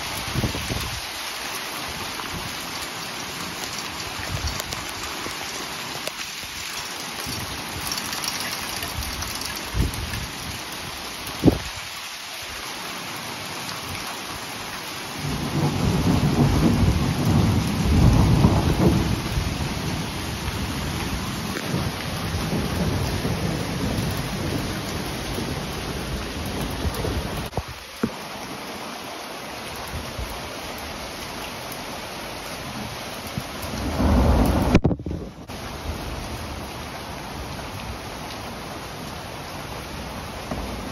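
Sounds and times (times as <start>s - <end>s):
steady rain: 0.0s - 40.9s
rolling thunder: 15.2s - 27.6s, 33.7s - 35.5s.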